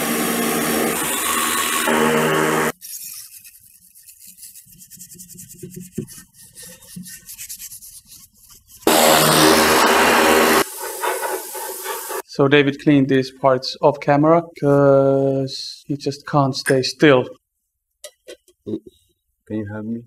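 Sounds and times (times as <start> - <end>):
pressure washer blasting: 0.0 - 2.7, 8.9 - 12.2
scrubbing by hand: 2.8 - 12.2.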